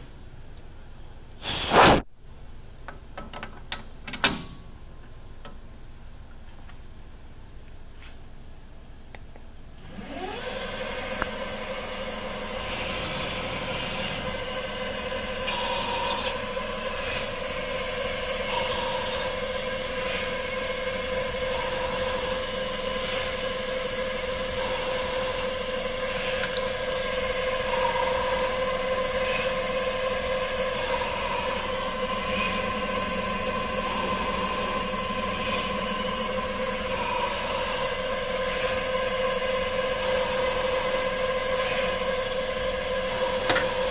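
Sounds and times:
lathe spindle whine: 9.8s - 43.9s
motor and cutting noise: 9.8s - 43.9s.

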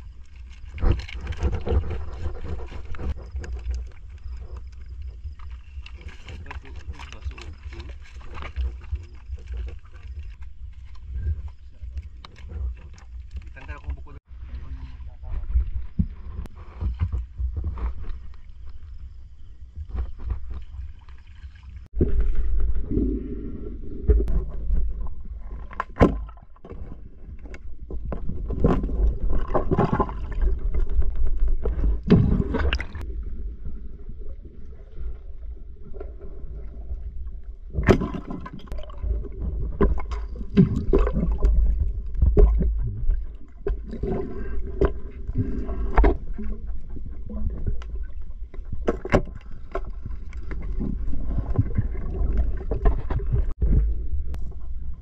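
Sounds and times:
muffled underwater rumble: 0.0s - 55.0s
water gurgling: 20.2s - 55.0s.

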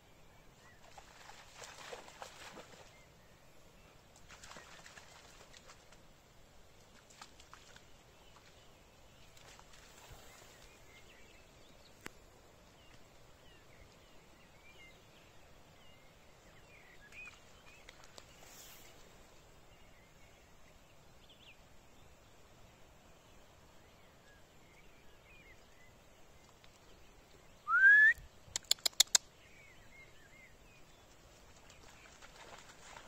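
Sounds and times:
faint marshland ambience: 0.0s - 33.0s
small bird chirps: 28.4s - 29.4s.

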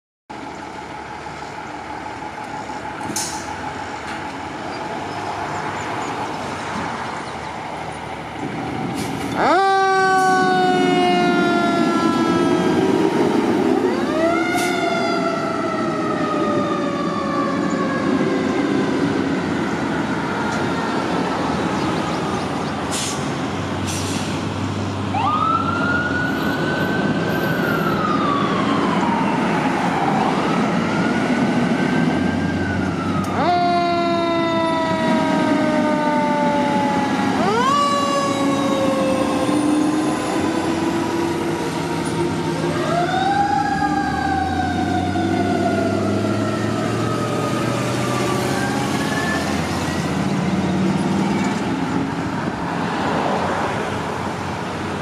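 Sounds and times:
diesel engine rumble: 0.3s - 52.7s
ambulance siren wailing: 8.8s - 22.0s, 25.1s - 50.3s.

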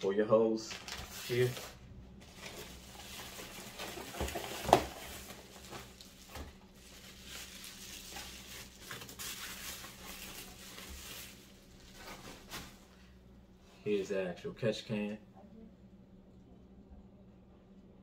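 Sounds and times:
plastic packaging crinkling: 0.7s - 12.9s.

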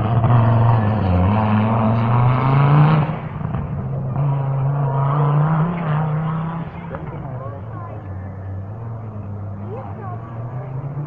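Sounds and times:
rally car engine accelerating: 0.0s - 11.0s.

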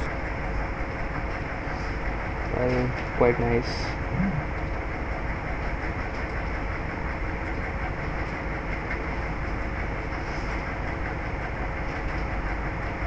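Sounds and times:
faint hum: 3.4s - 4.8s.

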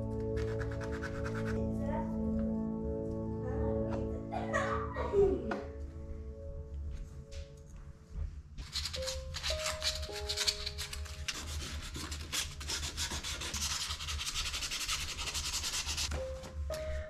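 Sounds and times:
soft background music: 0.0s - 17.0s
sandpaper rasping on plastic: 8.6s - 16.1s.

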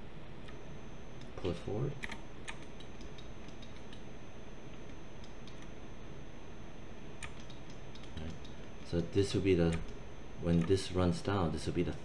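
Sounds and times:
background hiss and hum: 0.0s - 12.0s
mouse and keyboard clicks: 7.2s - 8.6s.

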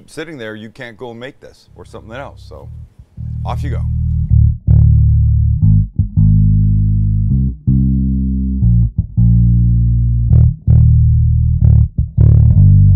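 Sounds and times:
music with heavy bass line: 1.9s - 12.9s.

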